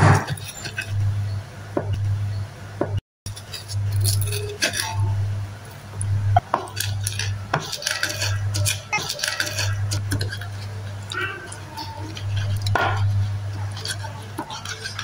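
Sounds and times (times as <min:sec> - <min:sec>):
steady low hum: 0:00.0 - 0:15.0
spoon clinking on ceramic plates: 0:06.8 - 0:13.1.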